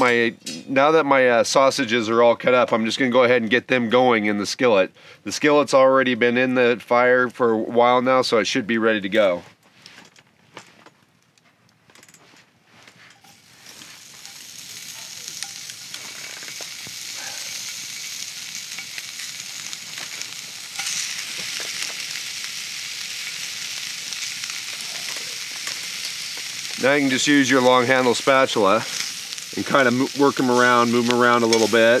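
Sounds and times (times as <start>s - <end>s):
sausage sizzling in a skillet: 13.1s - 32.0s.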